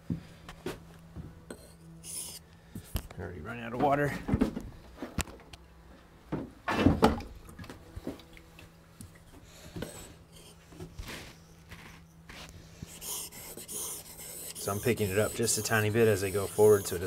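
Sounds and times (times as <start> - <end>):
blade scraping on whetstone: 12.9 - 17.0.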